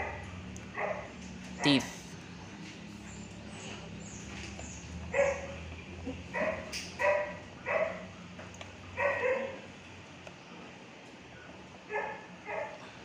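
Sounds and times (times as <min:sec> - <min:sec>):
dog barking: 0:00.0 - 0:02.0, 0:05.1 - 0:05.6, 0:06.3 - 0:08.1, 0:09.0 - 0:09.7, 0:11.9 - 0:12.8.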